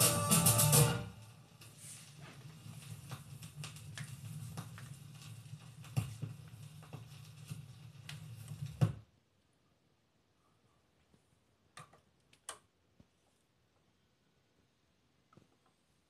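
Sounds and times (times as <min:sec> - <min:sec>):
record player low hum: 0:00.0 - 0:09.1
vinyl surface crackle and clicks: 0:00.0 - 0:09.1.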